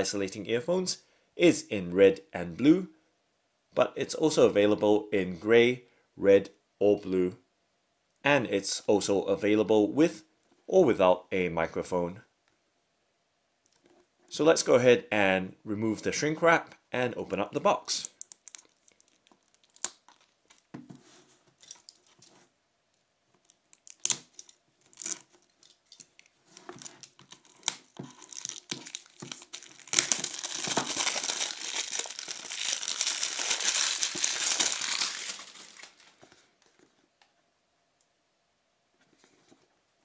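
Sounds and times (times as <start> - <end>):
plastic wrap crinkling: 18.1 - 22.4, 23.0 - 36.6
plastic wrap tearing: 18.2 - 20.7, 23.4 - 25.6, 26.2 - 36.2.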